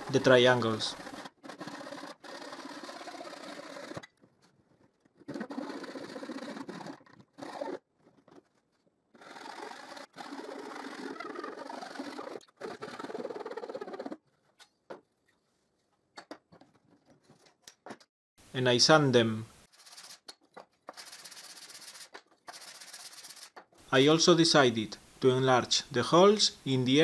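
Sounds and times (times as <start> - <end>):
hand saw cutting wood: 0.0 - 4.1, 5.2 - 7.8, 9.1 - 14.2.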